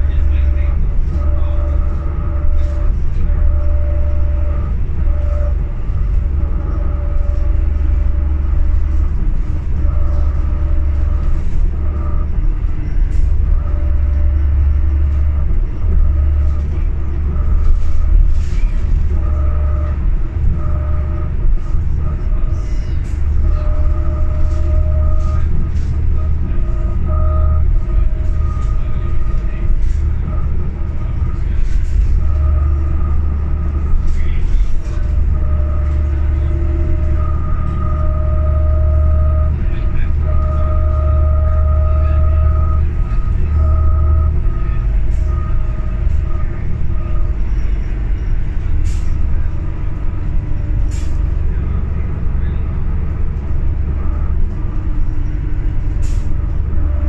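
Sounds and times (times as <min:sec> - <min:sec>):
bus engine rumble: 0:00.0 - 0:57.0
engine whine: 0:00.0 - 0:57.0.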